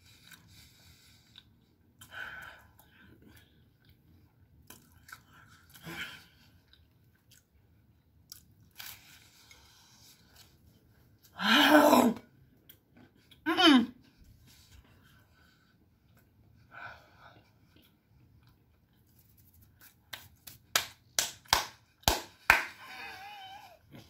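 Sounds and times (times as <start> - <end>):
person chewing with soft crunches: 0.0 - 11.4, 12.3 - 13.4, 14.0 - 20.6.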